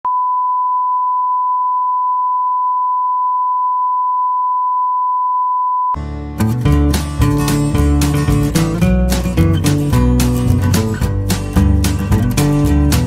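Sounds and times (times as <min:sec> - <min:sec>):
steady test tone beep: 0:00.1 - 0:06.0
music: 0:06.0 - 0:13.0.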